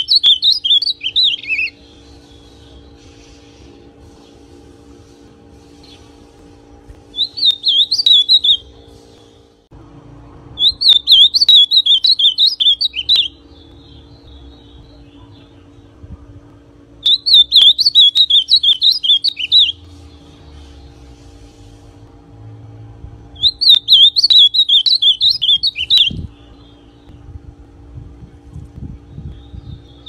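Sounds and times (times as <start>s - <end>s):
bird singing warbling song: 0.0s - 3.3s, 7.1s - 9.5s, 10.6s - 16.0s, 17.0s - 21.2s, 23.3s - 27.3s, 28.9s - 30.0s.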